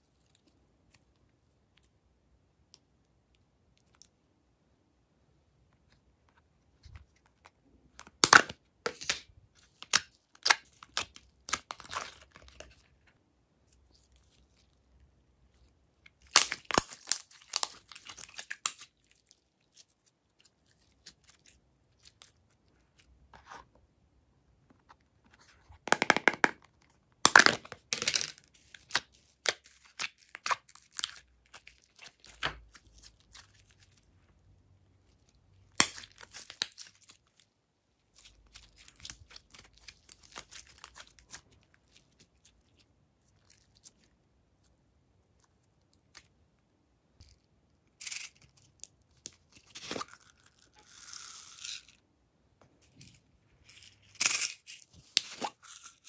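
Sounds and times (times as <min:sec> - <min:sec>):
sticky slime crackling and tearing: 0:16.2 - 0:22.3.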